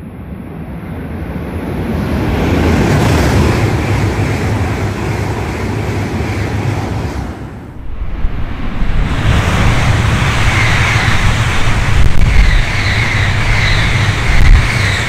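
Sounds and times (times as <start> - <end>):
high-speed train rushing rumble: 0.0 - 15.0
wavering high whine: 7.7 - 15.0.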